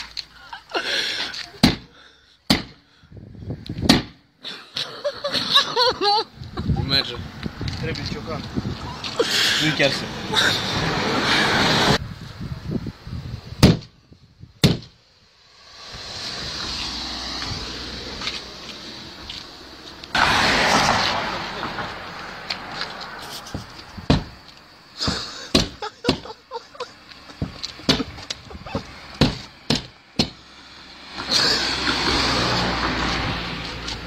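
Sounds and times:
rush of noise: 0:08.5 - 0:13.6, 0:15.2 - 0:24.4
knocks on car window glass: 0:24.1 - 0:24.3, 0:25.1 - 0:26.2, 0:29.2 - 0:30.4.

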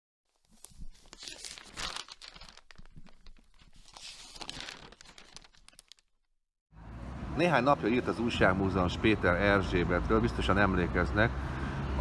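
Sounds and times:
paper rustling and crinkling: 0:00.3 - 0:06.3.

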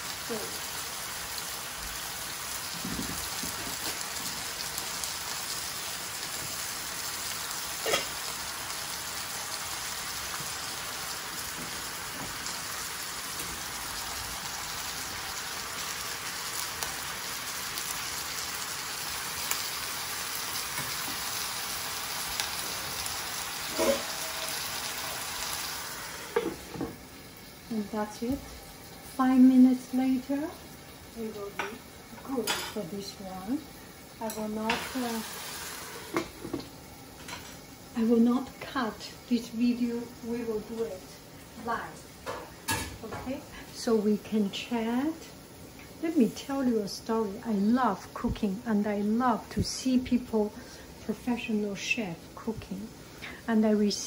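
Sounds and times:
vegetables sizzling in a pan: 0:00.0 - 0:54.0
utensils clinking on cookware: 0:23.7 - 0:24.5, 0:31.5 - 0:32.8.

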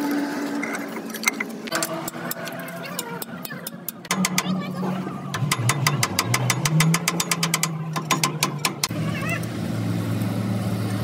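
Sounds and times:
rapid metal hammering: 0:01.7 - 0:08.9.

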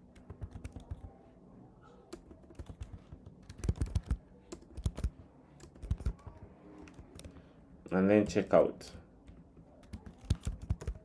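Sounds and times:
keyboard typing clicks: 0:00.1 - 0:01.1, 0:02.1 - 0:07.5, 0:09.2 - 0:11.0.

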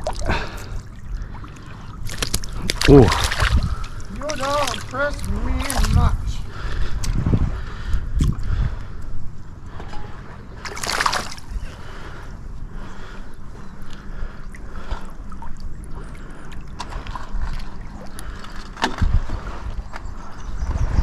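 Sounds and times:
water splashing: 0:00.0 - 0:08.4, 0:10.6 - 0:12.2, 0:14.2 - 0:19.0
shallow water sloshing: 0:00.0 - 0:20.3
wind rumble on microphone: 0:01.9 - 0:10.5, 0:16.8 - 0:21.0.

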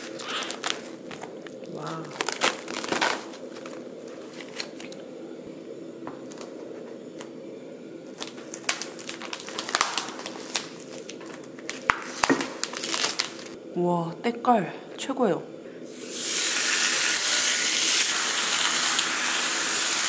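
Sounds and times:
plastic cling wrap crinkling: 0:00.0 - 0:05.0, 0:08.1 - 0:13.6
faint steady hum: 0:00.0 - 0:20.0.

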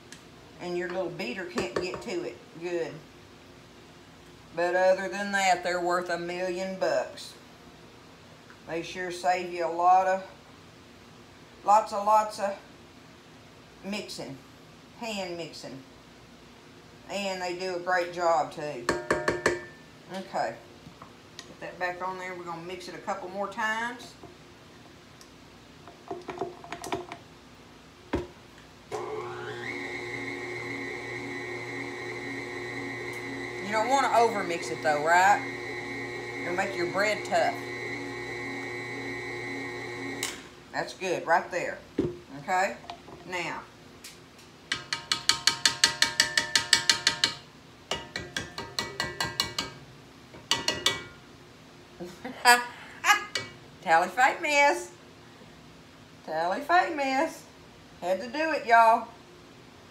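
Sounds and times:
whisk tapping metal bowl: 0:18.9 - 0:19.7, 0:44.7 - 0:49.8, 0:50.4 - 0:51.1
stand mixer motor humming: 0:29.0 - 0:40.2.

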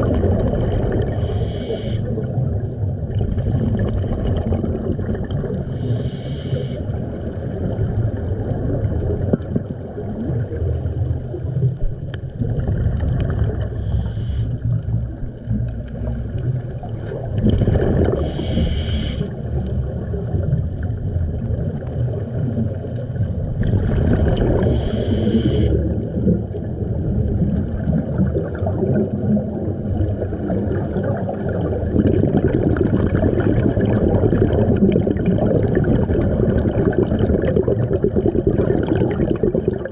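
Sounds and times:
exhaled air bubbling underwater: 0:00.0 - 0:39.9
regulator inhalation hiss: 0:01.1 - 0:02.1, 0:05.7 - 0:06.9, 0:13.8 - 0:14.6, 0:18.2 - 0:19.3, 0:24.7 - 0:25.8.

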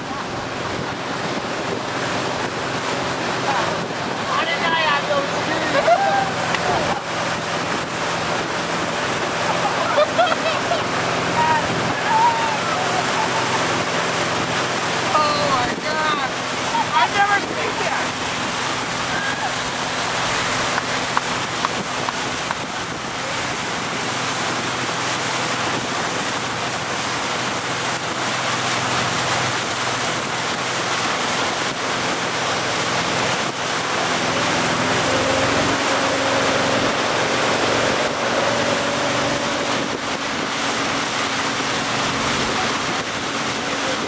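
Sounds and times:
wind buffeting microphone: 0:00.0 - 0:28.3
motorboat engine hum: 0:00.0 - 0:44.0
rush of the wake: 0:00.0 - 0:44.0.

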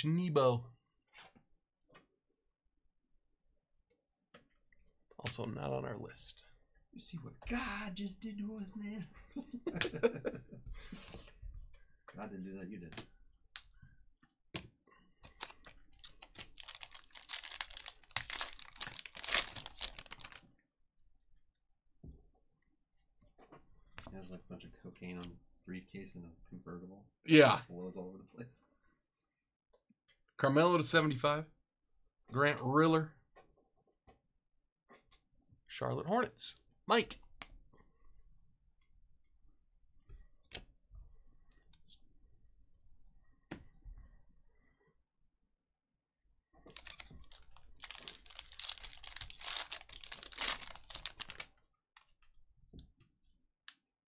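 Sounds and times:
foil wrapper crinkling: 0:15.3 - 0:20.4, 0:46.7 - 0:51.5.

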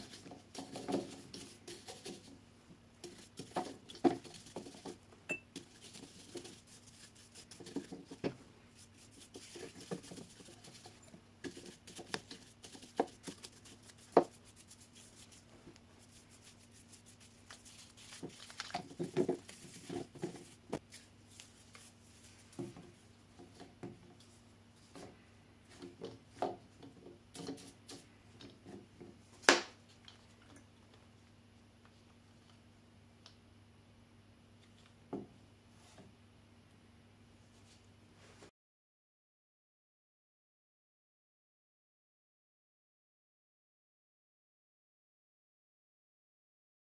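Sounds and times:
scratchy bristle rustles: 0:00.0 - 0:02.4, 0:03.0 - 0:26.4, 0:27.3 - 0:28.7
brush tapping on wood: 0:03.0 - 0:08.4, 0:09.0 - 0:20.9
gloved hand handling noises: 0:03.0 - 0:30.5.

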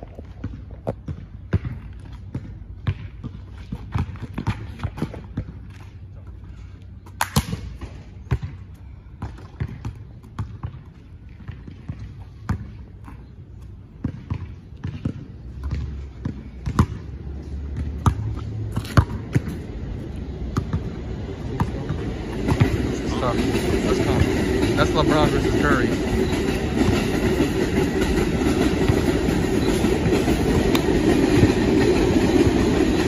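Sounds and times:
basketball bouncing on asphalt: 0:00.0 - 0:22.9, 0:26.1 - 0:33.0.

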